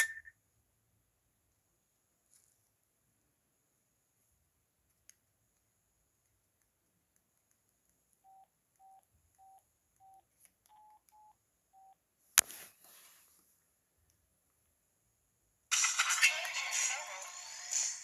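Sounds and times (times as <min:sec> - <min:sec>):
phone keypad beeps: 0:08.2 - 0:12.0.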